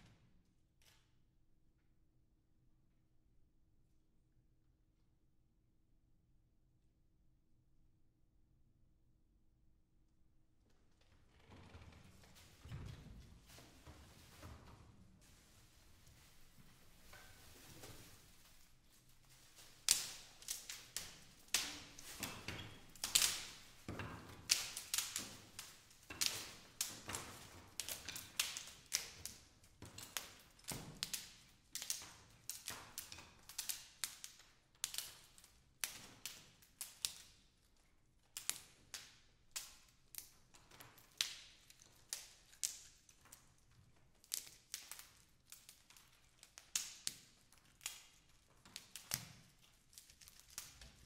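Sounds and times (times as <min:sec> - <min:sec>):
wooden sticks clicking and cracking: 0:18.5 - 0:51.0.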